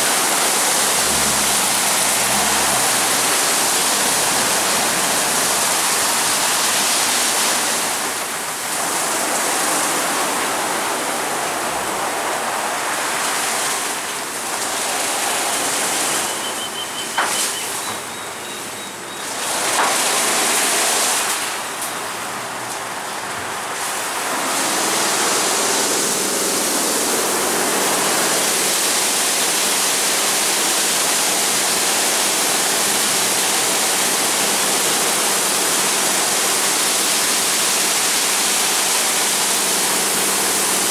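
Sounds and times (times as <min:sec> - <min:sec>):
water spray and spinning brushes: 0:00.0 - 0:22.1, 0:23.6 - 0:40.9
steady machine hum: 0:00.0 - 0:22.7.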